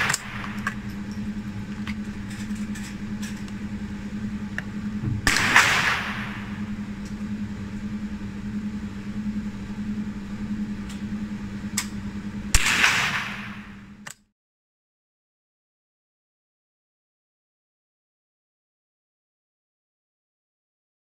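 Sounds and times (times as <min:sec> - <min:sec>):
steady low hum: 0:00.0 - 0:14.3
rifle shots with echo: 0:05.2 - 0:06.6, 0:12.6 - 0:13.6.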